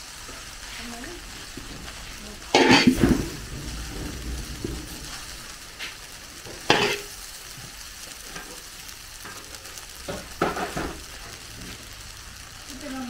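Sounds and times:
food frying: 0.0 - 13.0
metal ladle scraping wok: 0.6 - 7.2.

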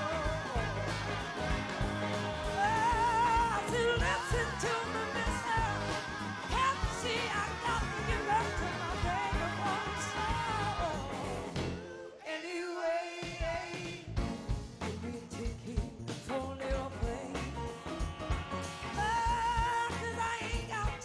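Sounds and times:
live soul-rock band: 0.0 - 12.0, 13.3 - 21.0
female lead vocal: 0.0 - 13.8, 19.0 - 21.0.

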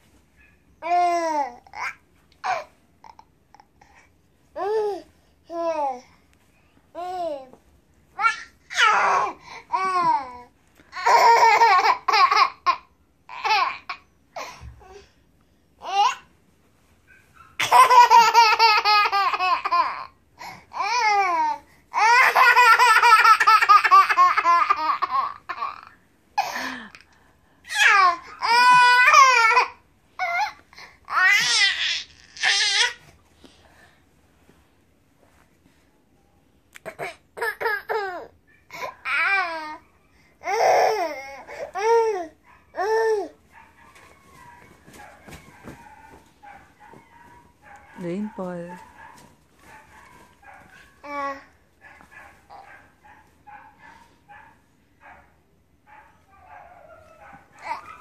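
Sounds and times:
toddler boy giggling: 17.6 - 20.1, 22.1 - 26.8
toddler laughing and squealing: 17.6 - 20.1.

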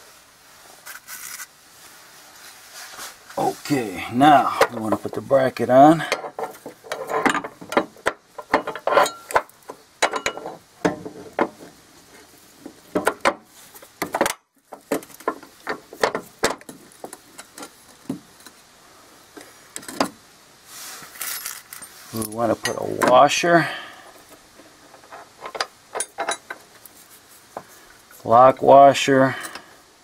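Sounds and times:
metal bracket clinking and scraping: 4.3 - 12.3, 21.1 - 23.5, 24.6 - 27.0.

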